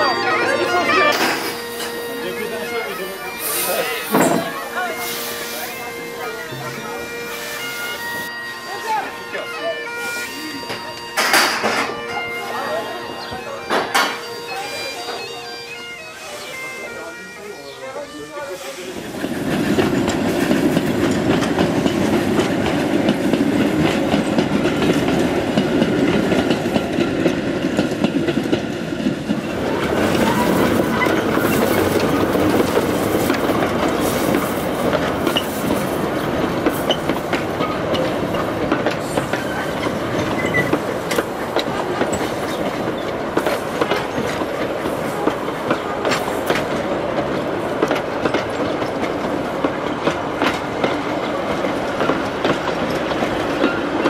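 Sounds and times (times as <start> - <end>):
train wheels clattering over rail joints: 11.2 - 12.0, 19.0 - 54.0.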